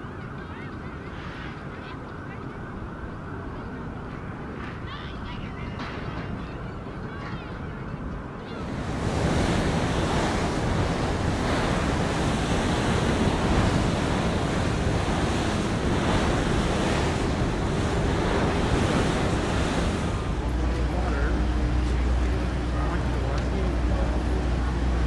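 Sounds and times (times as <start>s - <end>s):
jet airliner roaring overhead: 8.5s - 25.0s.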